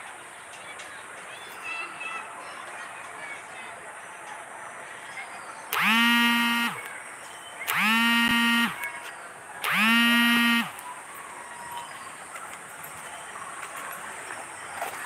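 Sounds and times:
horn blasts: 0:05.7 - 0:06.9, 0:07.7 - 0:08.8, 0:09.6 - 0:10.8.

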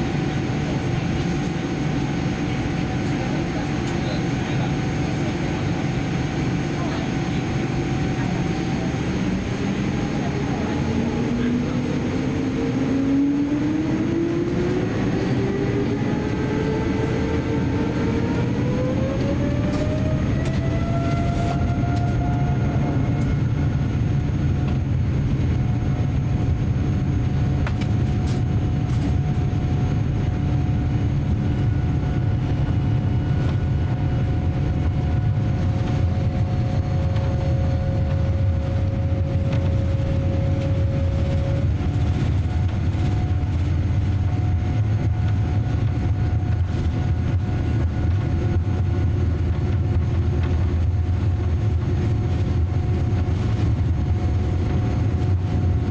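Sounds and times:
low rumble of aircraft engines: 0:00.0 - 0:55.9
whining tones: 0:12.0 - 0:24.2.

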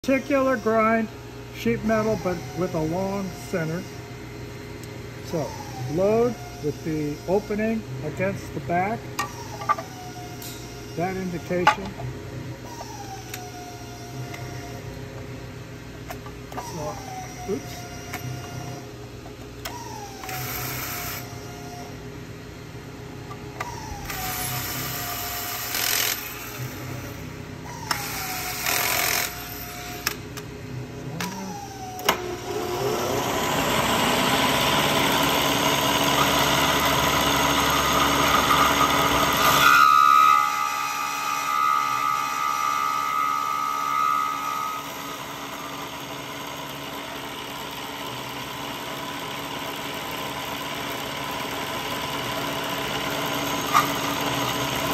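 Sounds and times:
milling machine running: 0:00.0 - 0:22.0, 0:22.9 - 0:54.9
cordless drill motor: 0:16.1 - 0:19.0, 0:19.6 - 0:22.0, 0:23.5 - 0:30.4, 0:31.1 - 0:39.8, 0:40.4 - 0:54.9.

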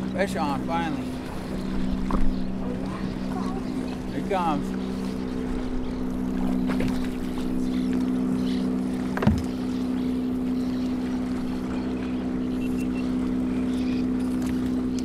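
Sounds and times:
boat motor humming: 0:00.0 - 0:15.0
short thump: 0:09.2 - 0:09.5.

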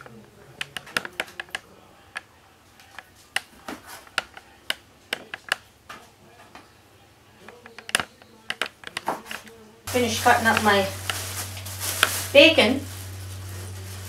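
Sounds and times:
knife tapping cutting board: 0:02.9 - 0:05.6.

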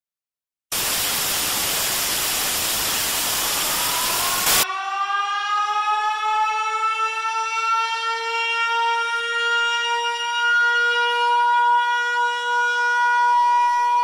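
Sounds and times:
tv static burst: 0:00.8 - 0:04.6.

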